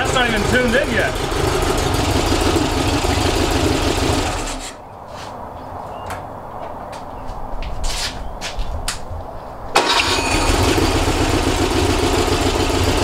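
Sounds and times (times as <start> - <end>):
car engine running: 0.0 - 4.7, 9.8 - 13.0.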